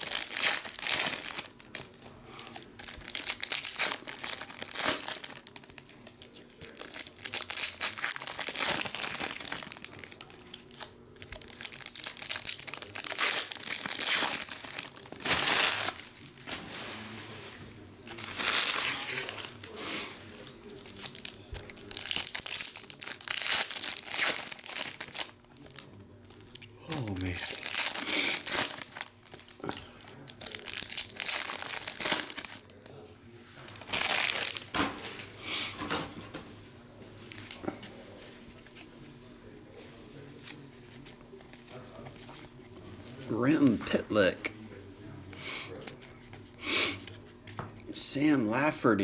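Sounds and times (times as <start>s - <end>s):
foil wrappers crinkling: 0.0s - 35.3s.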